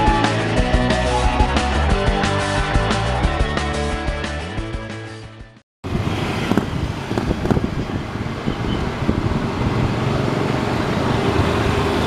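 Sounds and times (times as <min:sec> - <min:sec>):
wind noise on microphone: 0:05.8 - 0:12.0
motorcycles passing: 0:05.9 - 0:12.0.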